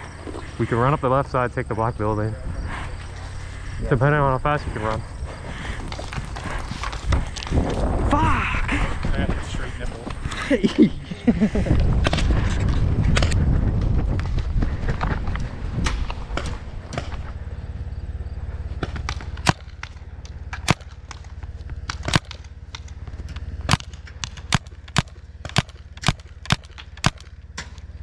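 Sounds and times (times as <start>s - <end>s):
paintball marker shots: 18.8s - 27.9s.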